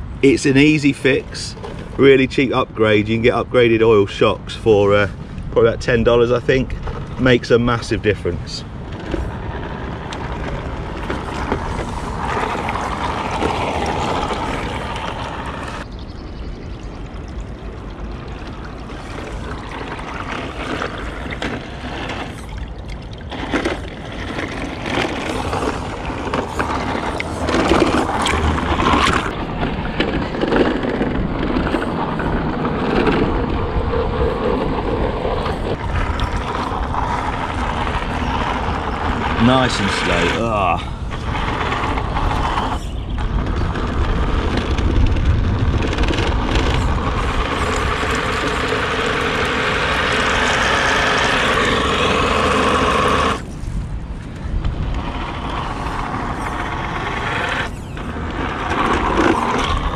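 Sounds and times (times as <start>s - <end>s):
toy truck electric motor: 8.8s - 15.9s, 18.5s - 53.8s, 54.7s - 59.9s.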